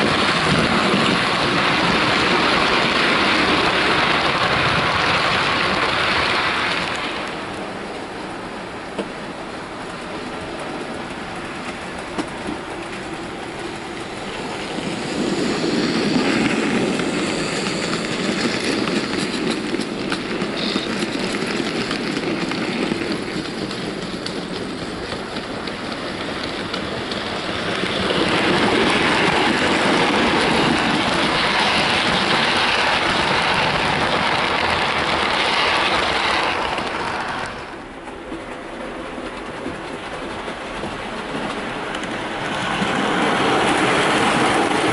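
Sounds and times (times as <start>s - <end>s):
model train wheels clacking on rails: 9.9s - 14.4s, 15.1s - 44.9s.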